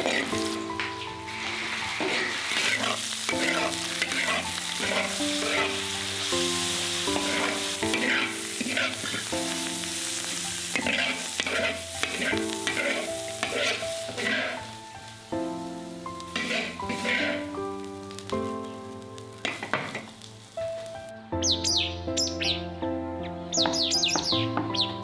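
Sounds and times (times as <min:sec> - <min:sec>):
metal spatula scraping a wok: 0:00.0 - 0:00.4, 0:01.3 - 0:05.8, 0:07.2 - 0:09.3, 0:10.7 - 0:14.6, 0:16.3 - 0:17.4
food sizzling: 0:00.0 - 0:22.7, 0:23.5 - 0:25.0
soft background music: 0:00.0 - 0:25.0.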